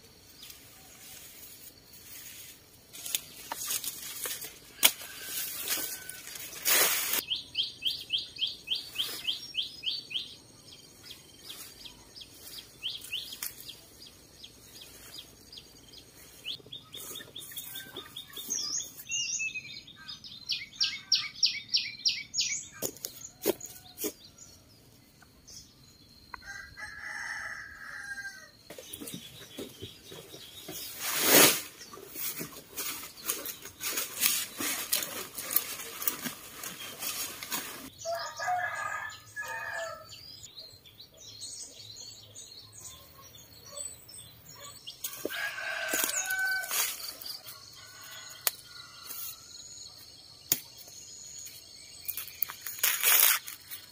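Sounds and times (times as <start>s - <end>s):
small birds chirping: 7.2s - 26.6s, 28.7s - 53.9s
rooster crowing: 26.4s - 28.6s, 38.0s - 40.2s, 45.2s - 46.9s.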